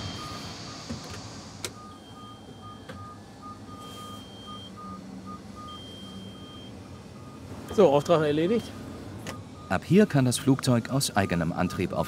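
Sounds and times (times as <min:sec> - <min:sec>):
electronic warning beeps: 0:00.0 - 0:00.9, 0:01.7 - 0:09.9
low engine hum: 0:00.0 - 0:12.0.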